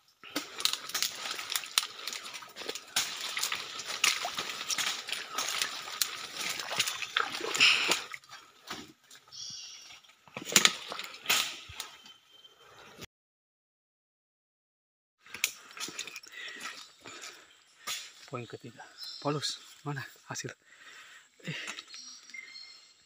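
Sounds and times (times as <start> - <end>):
leaves rustling and twigs snapping: 0.2 - 8.9, 10.3 - 12.0.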